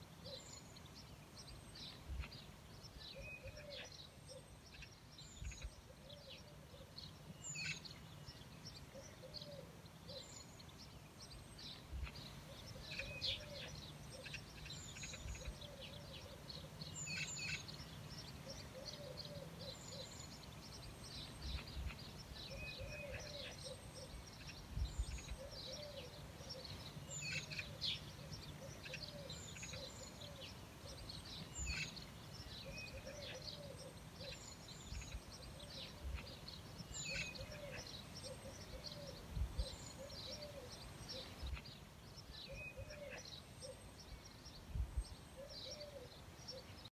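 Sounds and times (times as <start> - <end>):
lower arched bird call: 21.3 - 41.8.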